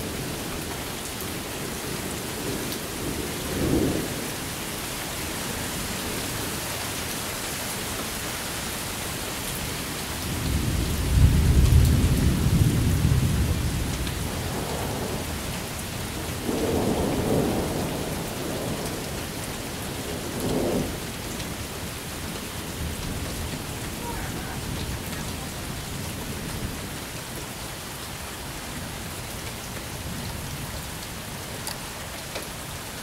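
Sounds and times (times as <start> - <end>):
steady rain: 0.0 - 33.0
thunder rumbling: 10.2 - 27.1.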